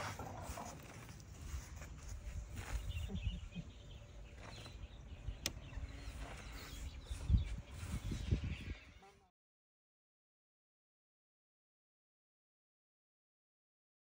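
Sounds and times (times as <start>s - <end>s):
faint rustles: 0.0s - 9.2s.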